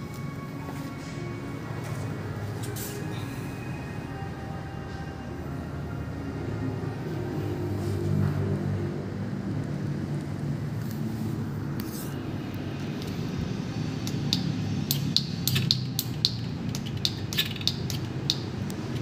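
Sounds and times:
bicycle drivetrain clicking: 14.1s - 19.0s.

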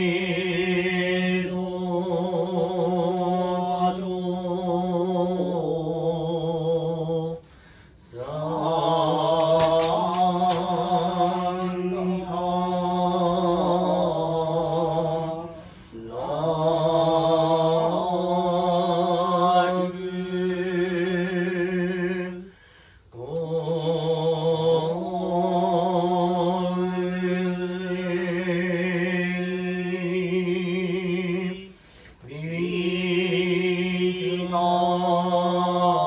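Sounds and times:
men chanting held notes: 8.0s - 22.5s.

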